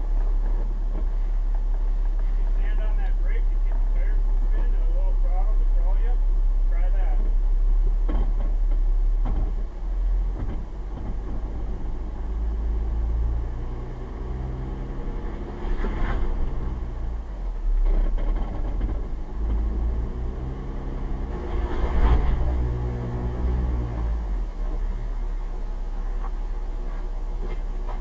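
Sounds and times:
car engine idling: 0.0s - 28.0s
faint knocks and clicks: 10.3s - 11.5s.

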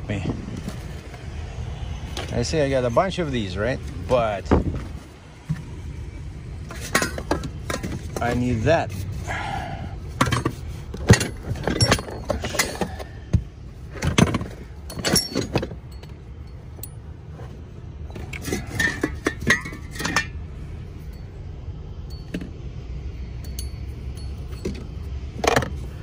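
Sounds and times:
low steady rumble: 0.0s - 26.0s
metal washers clinking: 6.6s - 8.5s, 10.1s - 13.1s, 13.9s - 17.5s, 18.1s - 21.3s, 22.0s - 22.6s, 23.3s - 25.8s.

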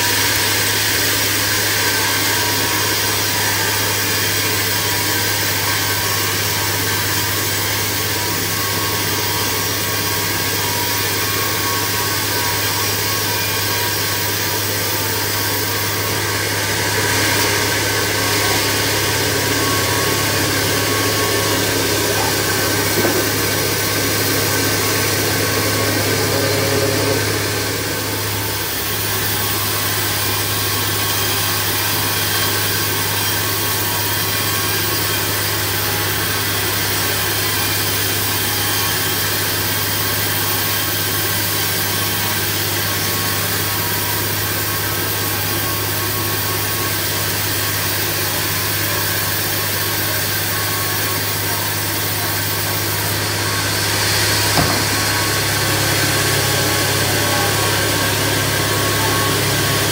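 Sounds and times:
band saw cutting log: 0.0s - 59.9s.

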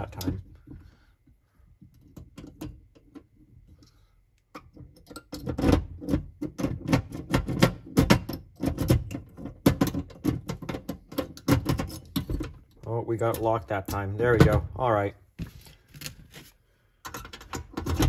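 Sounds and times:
lock clicking and rattling: 1.9s - 3.4s, 4.5s - 14.6s.

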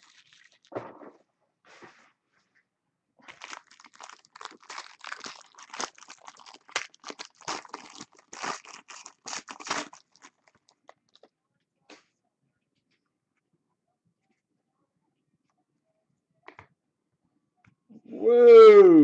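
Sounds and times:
foil wrapper crinkling: 0.0s - 0.7s, 3.2s - 11.3s.

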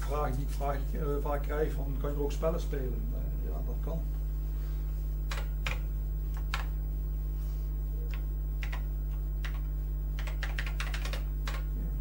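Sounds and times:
low electrical hum: 0.0s - 12.0s
keyboard keystrokes: 10.2s - 11.7s.

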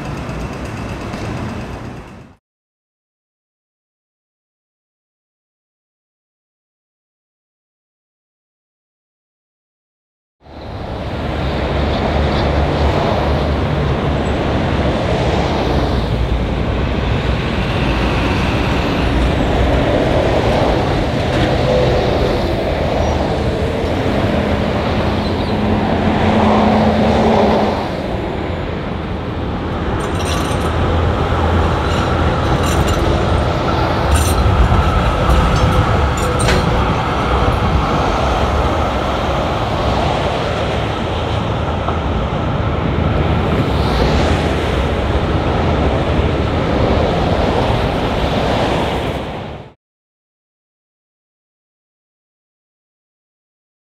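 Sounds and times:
electric tram on rails: 0.0s - 2.4s, 10.4s - 49.8s
traffic rumble: 0.0s - 2.4s, 10.5s - 49.4s.

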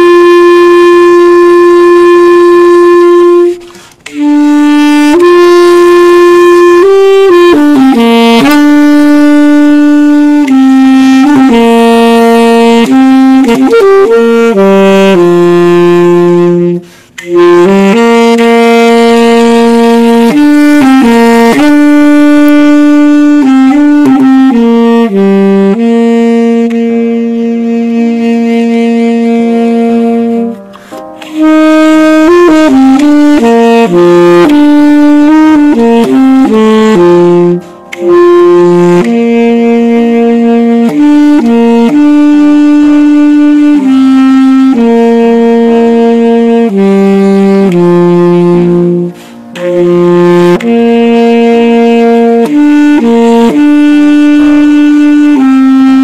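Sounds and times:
solo wind instrument melody: 0.0s - 56.0s.

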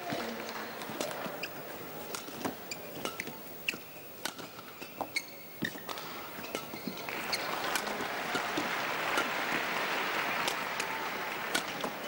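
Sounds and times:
shoes squeaking on court: 0.0s - 9.5s
rackets hitting shuttlecock: 2.1s - 9.6s.

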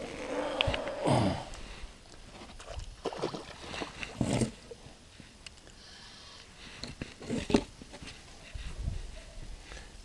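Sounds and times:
man grunting with effort: 1.0s - 1.5s.

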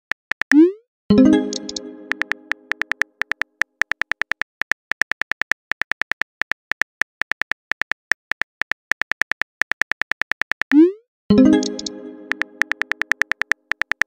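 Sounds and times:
phone keyboard tap clicks: 1.5s - 10.8s, 11.6s - 14.0s
short musical chime: 11.4s - 12.6s.

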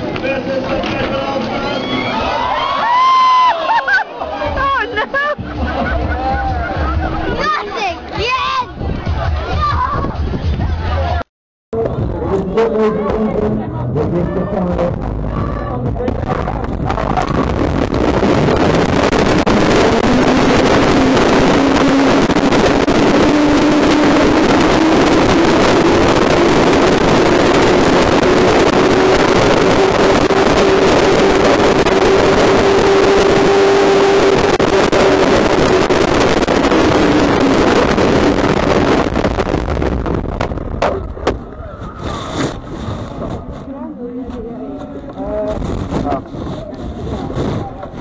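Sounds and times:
wheels rumbling on tarmac: 0.0s - 3.2s, 11.8s - 48.0s
wind on microphone: 8.7s - 11.2s, 11.8s - 48.0s
faint whine: 14.9s - 48.0s.

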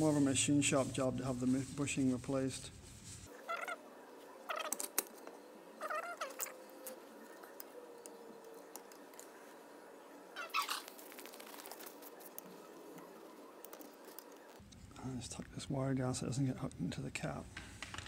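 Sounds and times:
short high wavering calls: 3.3s - 3.8s, 5.7s - 7.7s, 10.2s - 11.8s.

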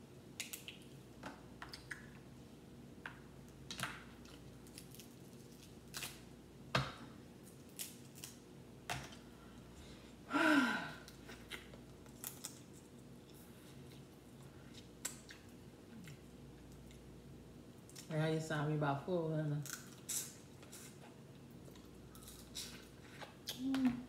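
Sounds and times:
crab shells cracking: 11.6s - 12.7s
person humming mm: 23.5s - 24.0s.

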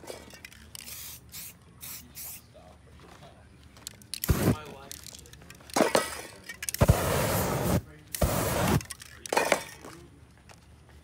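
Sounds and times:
spray paint can hissing: 0.7s - 2.5s, 4.2s - 4.6s, 6.8s - 8.9s.

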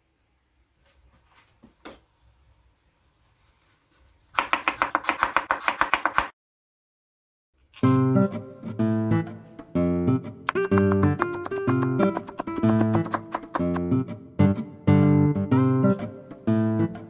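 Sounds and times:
knife chopping on wooden board: 4.4s - 6.3s, 10.5s - 13.9s.

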